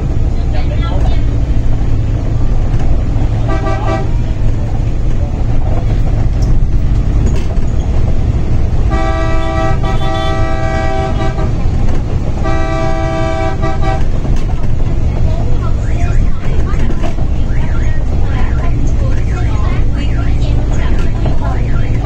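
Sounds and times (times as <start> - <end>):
bus engine rumble: 0.0 - 22.0
road noise: 0.0 - 22.0
vehicle horn honking: 3.4 - 4.3, 8.9 - 11.7, 12.4 - 14.2.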